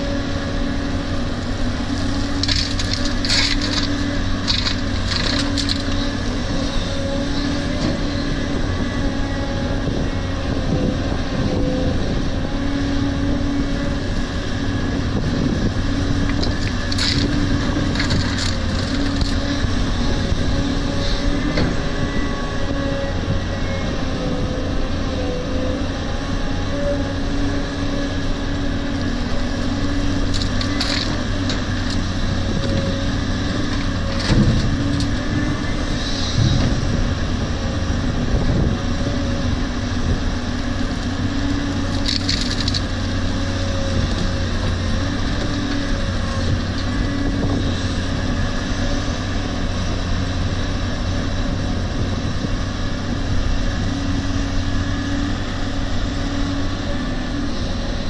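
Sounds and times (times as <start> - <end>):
excavator engine and hydraulics: 0.0 - 58.0.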